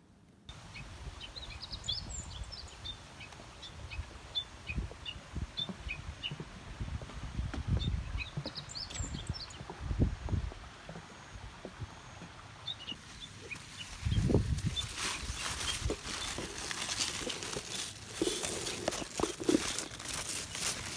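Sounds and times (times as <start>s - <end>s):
small birds chirping: 0.5s - 20.9s
footsteps on wooden planks: 4.8s - 20.9s.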